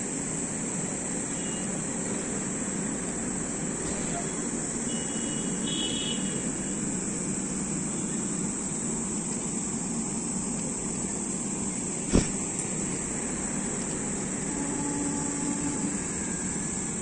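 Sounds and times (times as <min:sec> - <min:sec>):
train wheels on rail: 0:06.4 - 0:17.0.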